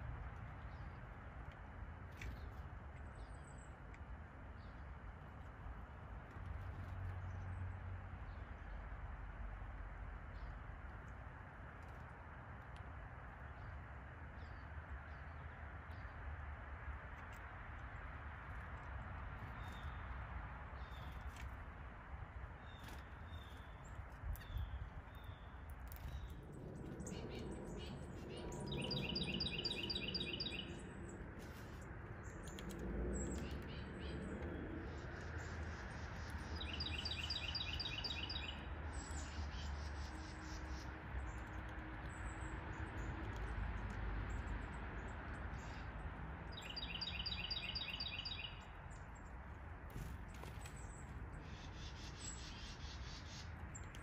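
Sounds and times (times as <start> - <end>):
low outdoor hum: 0.0 - 54.0
songbird trill: 22.5 - 43.6, 44.2 - 49.4, 50.0 - 54.0
faint bird chirps: 24.4 - 34.3.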